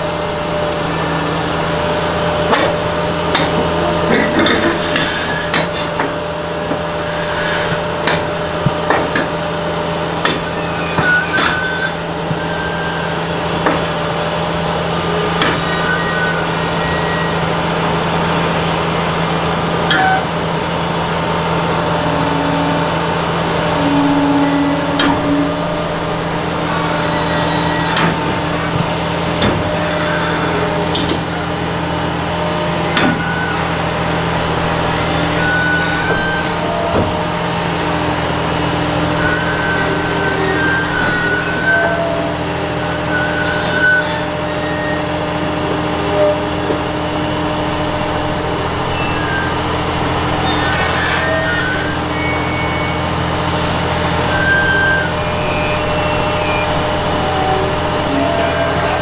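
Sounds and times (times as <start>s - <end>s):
excavator diesel engine running: 0.0s - 59.0s
steel tracks clanking: 0.0s - 59.0s
short squeals: 4.3s - 6.0s, 6.9s - 8.5s, 10.3s - 17.8s, 21.8s - 31.5s, 32.7s - 34.1s, 34.9s - 37.6s, 38.9s - 59.0s.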